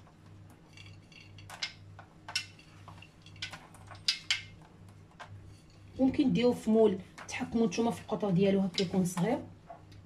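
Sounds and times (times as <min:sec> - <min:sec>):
pieces clicking on ceramic plate: 0:00.8 - 0:05.4.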